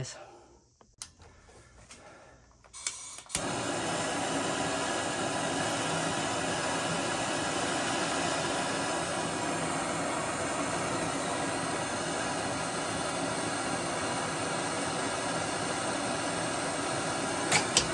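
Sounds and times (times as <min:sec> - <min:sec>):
torch igniter clicks: 0:02.6 - 0:04.4, 0:15.4 - 0:17.9
torch flame hissing: 0:02.7 - 0:17.9.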